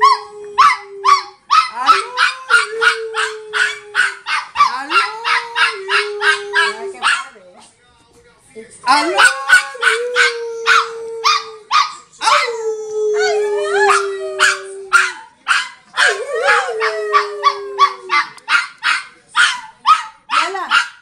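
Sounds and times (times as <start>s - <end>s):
dog howling: 0.0s - 7.1s, 8.9s - 15.3s, 16.0s - 18.4s.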